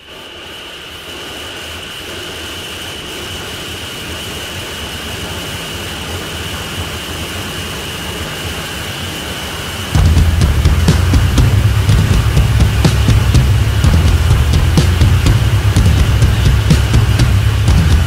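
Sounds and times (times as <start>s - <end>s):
droning metal music intro: 10.0s - 18.0s.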